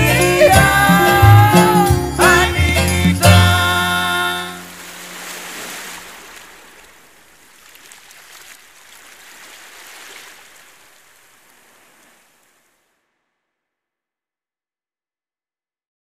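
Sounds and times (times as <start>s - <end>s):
string band music: 0.0s - 5.3s
rushing water: 3.3s - 13.1s.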